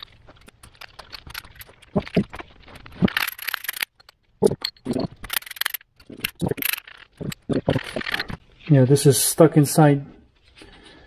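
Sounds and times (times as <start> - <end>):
metal parts scraping: 0.0 - 8.6
steel tool parts clinking: 0.6 - 8.3.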